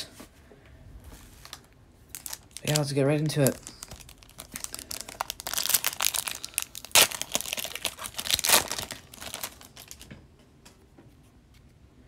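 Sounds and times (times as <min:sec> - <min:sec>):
foil wrapper crinkling: 0:01.3 - 0:10.1
foil wrapper ripping: 0:01.4 - 0:10.1.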